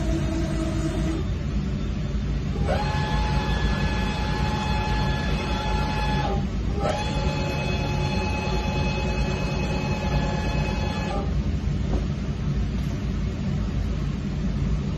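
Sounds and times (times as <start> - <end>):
lathe mechanical whine: 0.0 - 11.4
low machine rumble: 0.0 - 14.9.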